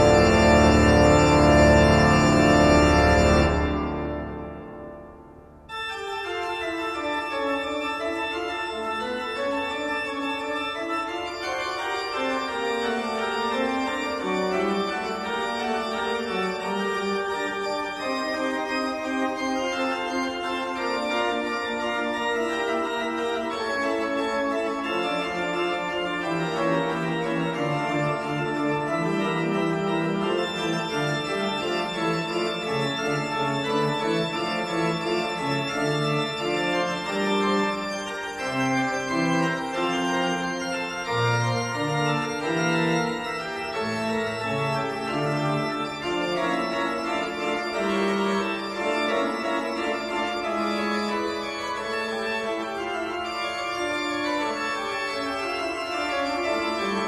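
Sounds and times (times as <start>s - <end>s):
organ-like keyboard chords: 0.0s - 57.0s.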